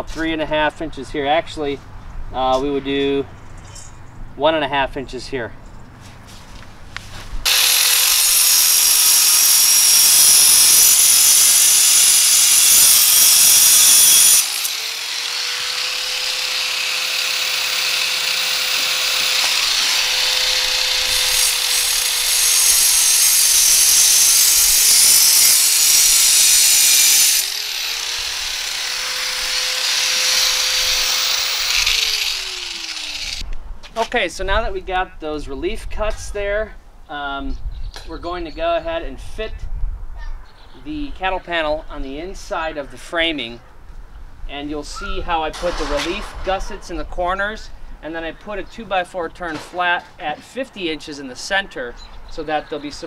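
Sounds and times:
motor whining: 7.5 - 33.4
power tool cutting steel wire: 7.5 - 33.4.

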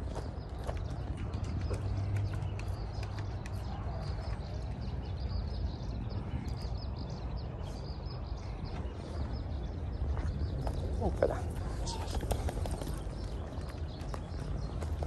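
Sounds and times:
small birds chirping: 0.0 - 15.0.

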